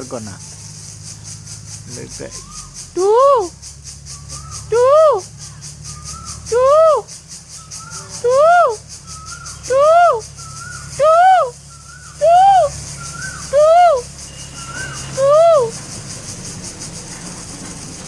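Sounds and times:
cuckoo calling: 2.2 - 16.0.

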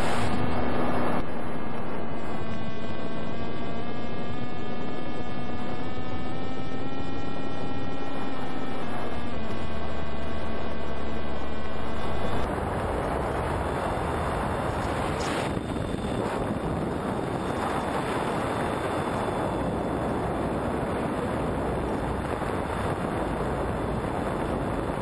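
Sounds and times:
wind rushing over microphone: 0.0 - 1.2, 12.0 - 25.0
electric motor whine: 0.0 - 25.0.

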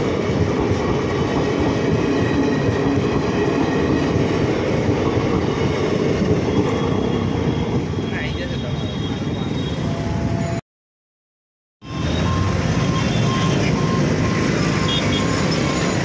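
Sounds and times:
train wheels rumbling on rails: 0.0 - 8.6.

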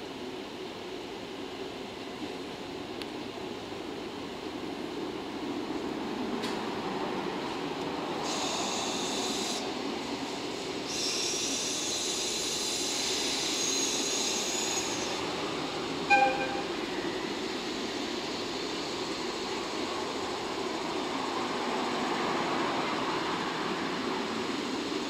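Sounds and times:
locomotive hum: 0.1 - 25.0
air hissing: 8.1 - 16.2
short sharp locomotive toot: 16.0 - 17.2.

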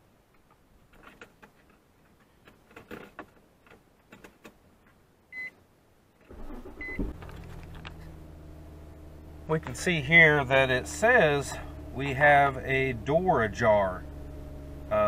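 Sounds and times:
car engine starting and idling: 6.2 - 15.0.

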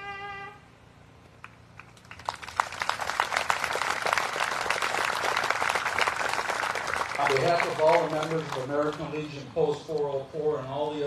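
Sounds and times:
crowd applauding: 1.8 - 9.3.

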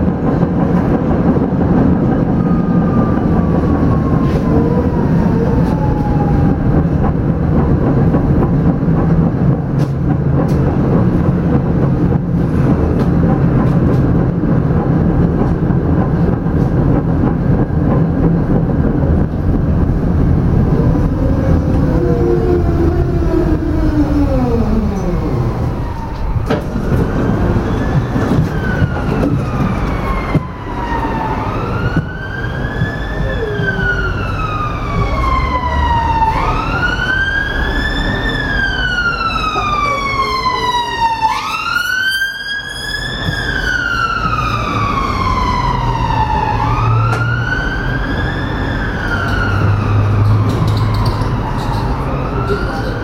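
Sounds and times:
emergency siren wailing: 1.3 - 8.1, 17.5 - 53.0
low rumble: 14.2 - 28.9.

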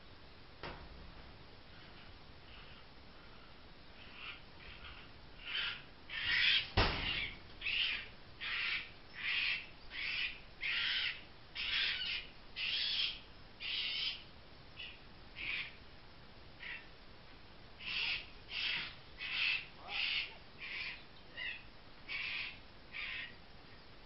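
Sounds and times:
fox cub distress cries: 4.0 - 14.2, 17.8 - 23.4
sharp knock: 6.8 - 7.2.

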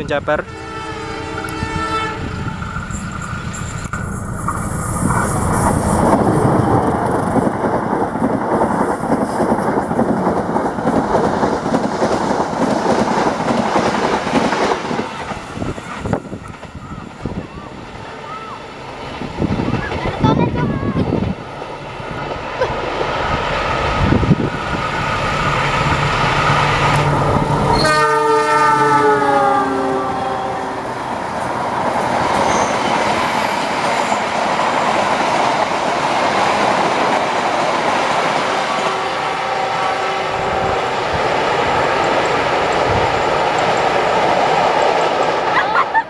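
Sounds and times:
locomotive engine rumbling: 0.0 - 8.8, 9.8 - 46.0
multi-tone train horn: 0.3 - 2.6, 27.0 - 31.0, 38.4 - 41.2
train wheels clattering on rails: 3.0 - 17.4, 40.8 - 46.0.

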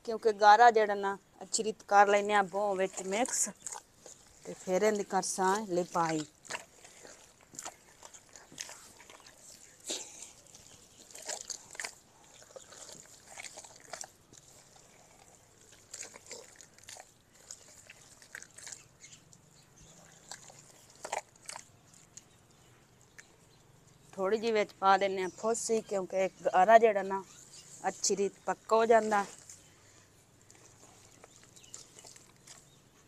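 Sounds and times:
hands squelching wet mud: 1.8 - 33.0.

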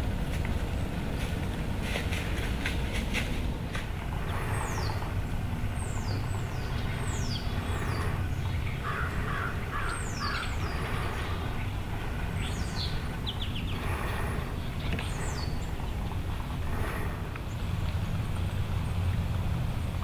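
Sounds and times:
steady low rumble: 0.0 - 20.0
bird cawing: 4.0 - 17.6.

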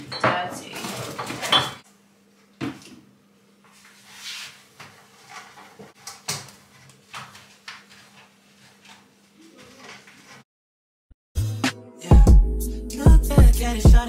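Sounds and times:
items moved in fridge: 0.0 - 1.8.

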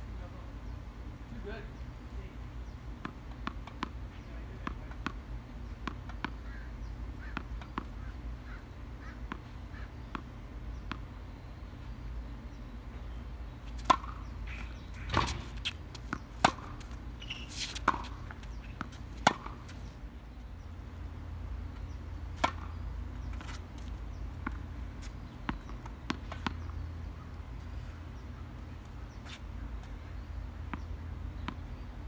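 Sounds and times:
tennis ball bouncing: 2.6 - 11.1, 13.6 - 19.9, 21.7 - 31.8
rackets striking tennis ball: 3.0 - 6.5, 13.7 - 19.8, 22.3 - 26.8.

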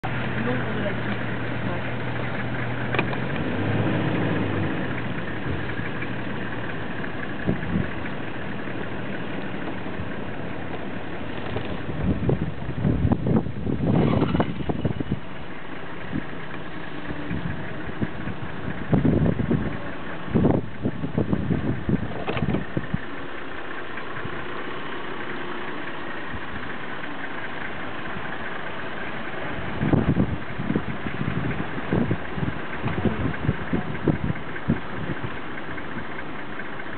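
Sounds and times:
low rumbling bumps: 0.0 - 36.9
vehicle engine idling: 0.0 - 36.9.

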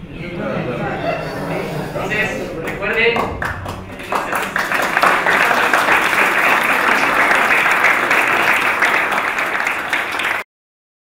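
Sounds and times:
audience applauding: 1.9 - 10.5.

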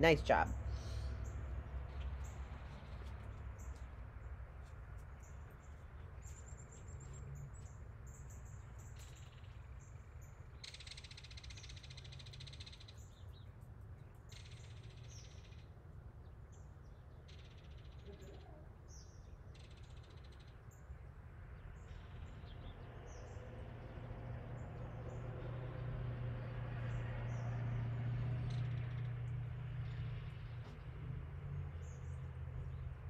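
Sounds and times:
small birds chirping: 0.0 - 25.4.

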